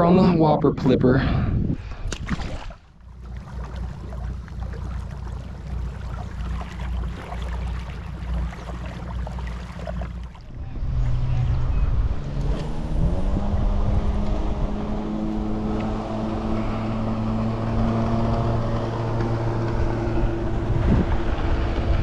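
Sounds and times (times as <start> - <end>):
wind buffeting microphone: 0.0 - 2.6, 10.0 - 22.0
boat motor humming: 2.8 - 22.0.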